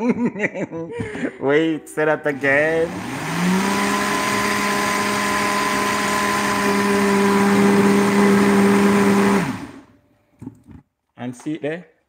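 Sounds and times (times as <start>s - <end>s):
blender motor running: 2.3s - 9.9s.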